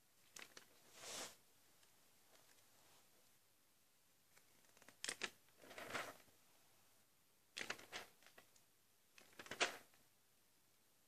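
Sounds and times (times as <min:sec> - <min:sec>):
paper pages rustling: 0:04.4 - 0:06.2, 0:09.2 - 0:09.8.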